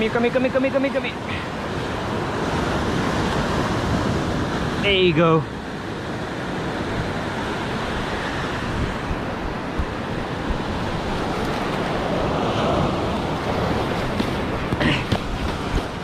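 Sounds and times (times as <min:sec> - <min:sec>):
ocean surf breaking on beach: 0:00.0 - 0:16.0
wind buffeting microphone: 0:06.1 - 0:16.0.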